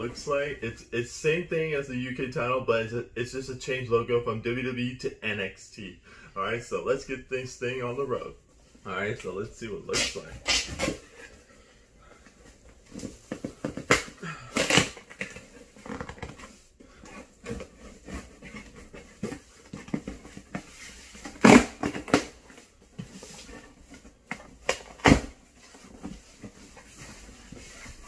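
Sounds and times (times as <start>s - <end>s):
cardboard scraping and rustling: 12.4s - 28.0s.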